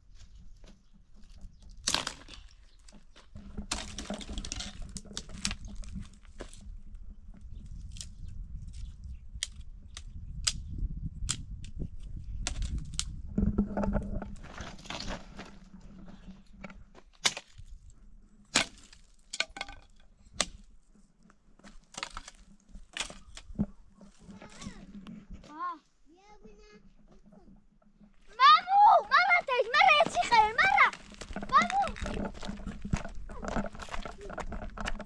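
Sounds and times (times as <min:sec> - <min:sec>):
dry twigs crunching: 0:01.2 - 0:06.7, 0:21.6 - 0:25.0, 0:28.4 - 0:35.0
twigs snapping: 0:01.7 - 0:03.0, 0:09.4 - 0:11.8, 0:12.4 - 0:13.2, 0:21.6 - 0:23.6.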